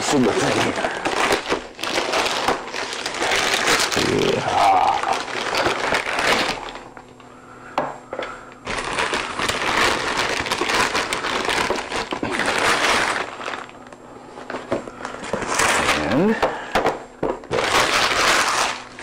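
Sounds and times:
plastic bag crinkling: 0.0 - 7.0, 8.6 - 13.9, 17.4 - 19.0.

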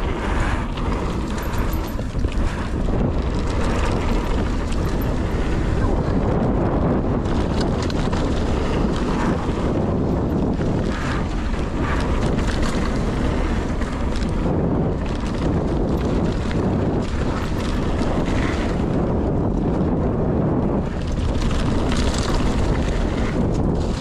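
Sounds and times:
bike clattering over rough ground: 0.0 - 24.0
tyres rushing on dirt: 0.0 - 24.0
wind buffeting microphone: 0.0 - 24.0.

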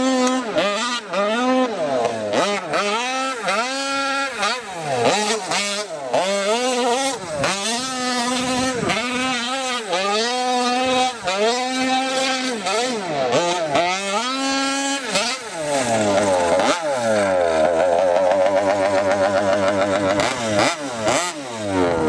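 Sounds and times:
two-stroke engine revving hard: 0.0 - 22.0.

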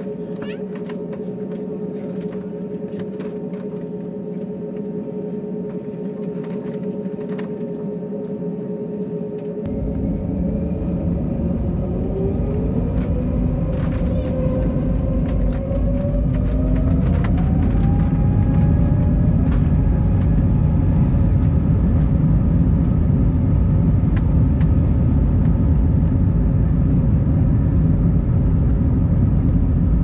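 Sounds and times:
deep engine rumble: 0.0 - 30.0
jet engines whining: 0.0 - 30.0.

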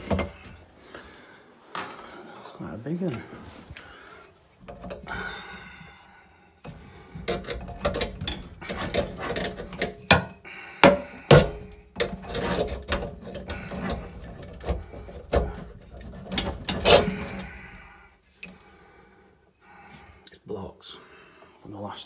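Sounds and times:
metal spanner clinking and scraping: 0.0 - 0.7, 4.6 - 5.5, 6.6 - 18.7.

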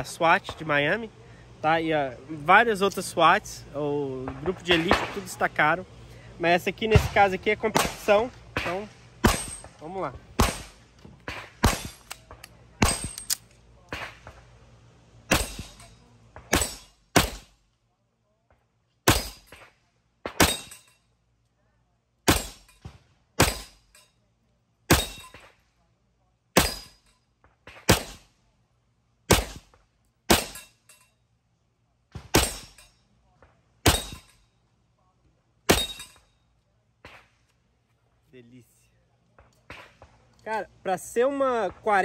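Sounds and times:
pistol shots: 4.7 - 5.3, 6.9 - 9.7, 10.4 - 12.2, 15.3 - 15.8, 16.4 - 17.5, 19.0 - 19.6, 22.3 - 22.7, 23.4 - 23.8, 27.7 - 28.3, 29.3 - 29.7, 30.3 - 30.6, 32.2 - 32.8.

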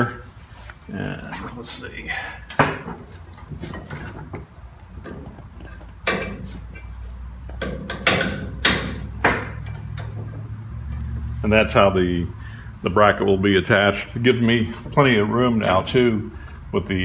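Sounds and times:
metal cable clicks and knocks: 2.5 - 6.9, 7.5 - 10.4.

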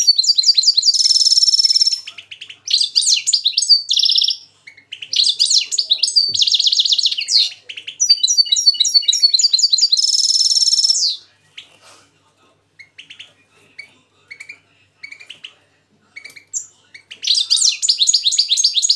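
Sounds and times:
buzzy bird trill: 0.0 - 11.7, 16.2 - 18.9
bird chirps: 0.0 - 11.8, 12.8 - 18.9
finches singing: 0.0 - 11.8, 12.8 - 18.9.

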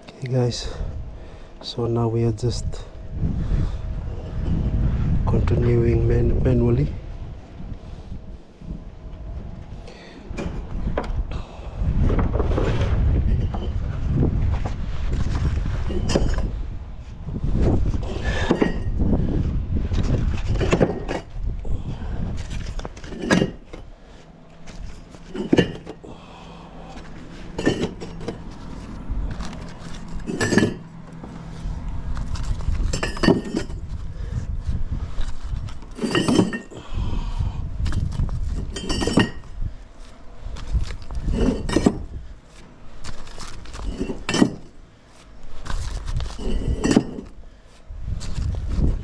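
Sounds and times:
clay bricks clinking: 22.6 - 23.9, 24.7 - 31.3, 32.2 - 33.9, 35.7 - 36.8, 43.0 - 44.8, 45.6 - 47.4.

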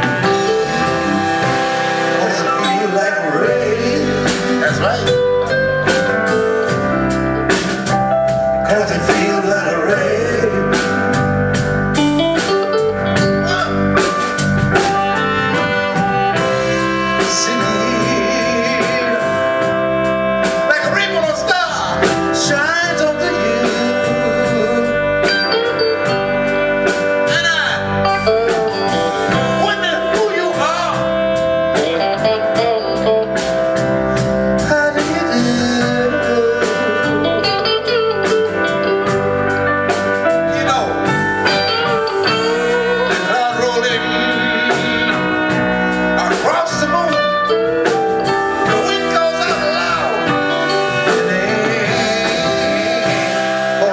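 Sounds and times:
person singing: 0.0 - 6.8, 8.5 - 11.2, 14.8 - 19.9, 20.5 - 26.3, 34.2 - 39.2, 40.4 - 53.9
bass guitar: 0.0 - 53.9
drum kit: 0.0 - 53.9
electric guitar: 0.0 - 53.9
saxophone: 0.0 - 53.9
trumpet: 0.0 - 53.9.

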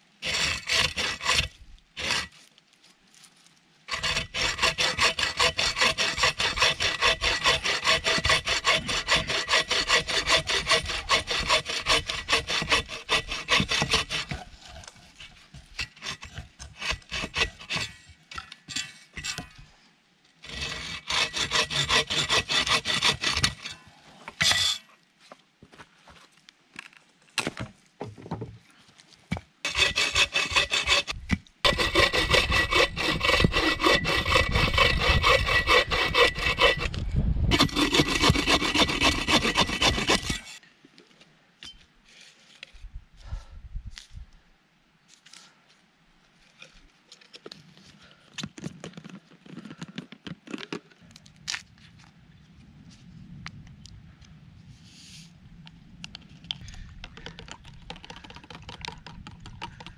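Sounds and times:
bow saw cutting through log: 0.2 - 2.4, 3.9 - 18.0, 20.4 - 23.8, 29.6 - 40.6
small knocks and scrapes: 23.0 - 30.0, 46.4 - 53.7, 54.8 - 59.9.

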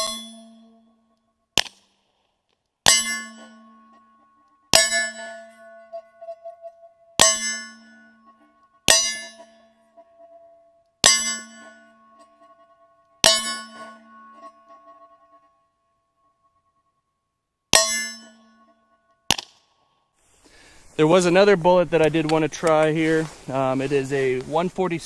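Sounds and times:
bullets striking steel target: 1.6 - 2.0, 2.8 - 4.1, 4.7 - 5.9, 7.2 - 9.7, 11.0 - 12.1, 13.2 - 14.5, 17.7 - 18.6, 19.3 - 19.8.

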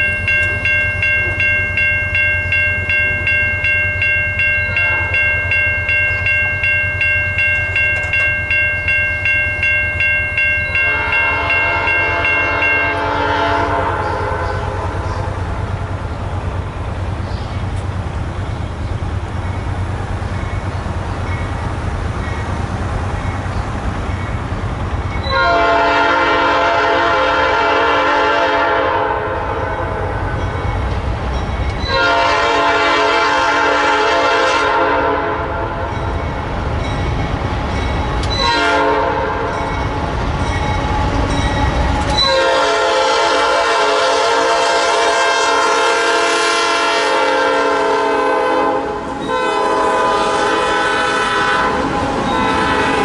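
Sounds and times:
low train rumble: 0.0 - 53.0
train air horn blasts: 10.8 - 15.1, 25.2 - 30.2, 31.9 - 35.9, 38.3 - 39.6, 42.2 - 53.0.

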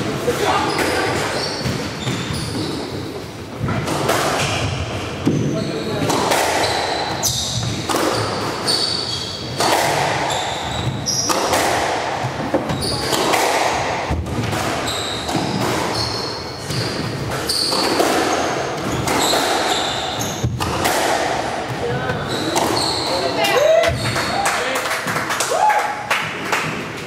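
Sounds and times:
shoes squeaking on wooden floor: 0.4 - 3.8, 4.6 - 13.5, 14.7 - 24.4
squash ball cracking off rackets and wall: 6.0 - 8.6, 9.6 - 16.0, 16.6 - 21.8.

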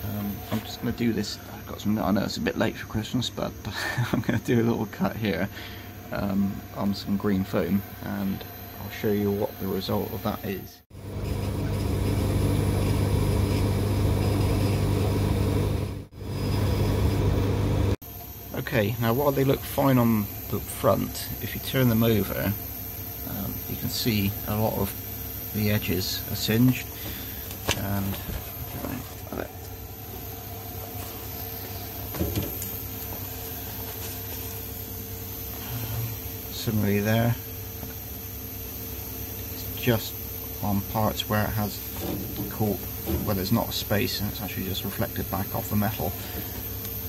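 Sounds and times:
laser cutter humming: 0.0 - 47.0.

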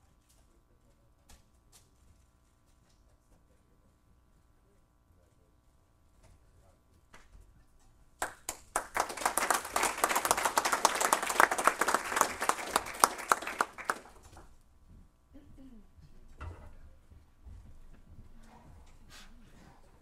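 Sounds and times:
audience applauding: 8.2 - 14.4.

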